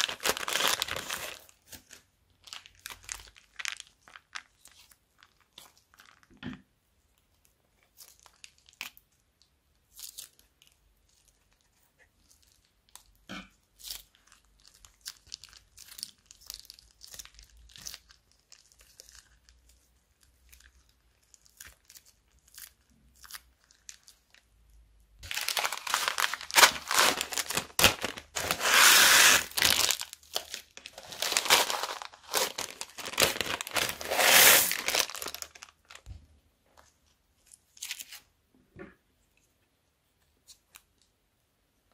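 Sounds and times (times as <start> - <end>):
plastic zip bag crinkling: 0.0 - 6.3, 25.2 - 36.1.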